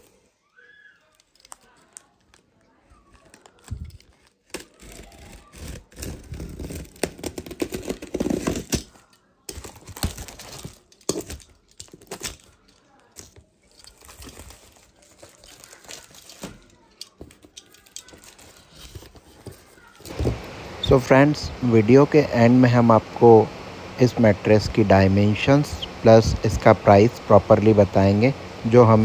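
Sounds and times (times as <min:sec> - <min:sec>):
cardboard packaging tearing: 0:03.2 - 0:16.9.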